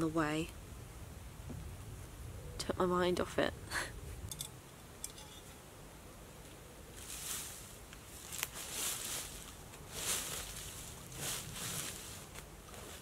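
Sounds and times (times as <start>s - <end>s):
camping gear rustling: 6.9s - 13.0s.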